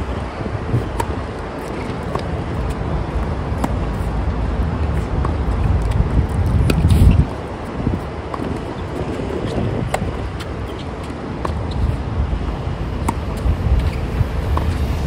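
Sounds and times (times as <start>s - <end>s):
steady low rumble: 0.0s - 15.0s
tennis ball bounces: 0.8s - 2.8s, 3.5s - 4.1s, 13.0s - 14.8s.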